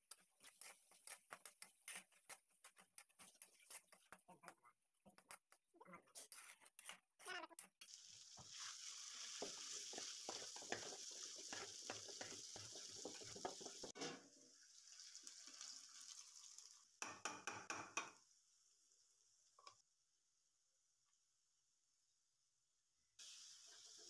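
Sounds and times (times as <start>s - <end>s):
spoon scraping a metal pan: 6.0s - 7.0s
food sizzling in a wok: 7.8s - 19.7s, 23.2s - 24.0s.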